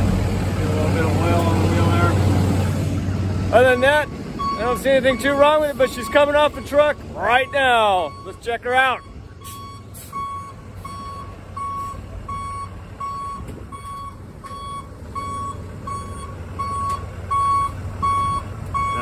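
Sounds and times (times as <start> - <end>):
truck engine running low: 0.0 - 19.0
truck backup alarm beeping: 3.5 - 19.0.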